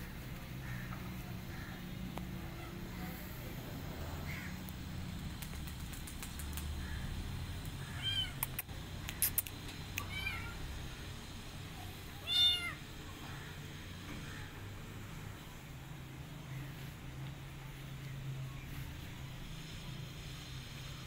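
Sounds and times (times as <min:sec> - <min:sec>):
sharp clicks: 0:04.6 - 0:06.8, 0:07.6 - 0:10.1
kitten meowing: 0:07.9 - 0:08.7, 0:10.0 - 0:10.6, 0:12.2 - 0:12.8.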